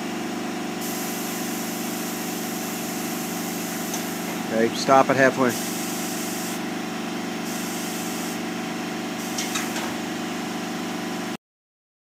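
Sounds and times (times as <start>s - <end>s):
mechanical hum: 0.0s - 11.4s
compressed air hiss: 0.8s - 4.6s, 5.5s - 6.6s, 7.4s - 8.4s, 9.2s - 9.8s.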